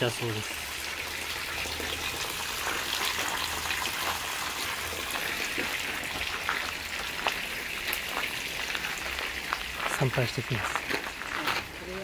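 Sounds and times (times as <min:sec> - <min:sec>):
spring water running and splashing: 0:00.0 - 0:12.0.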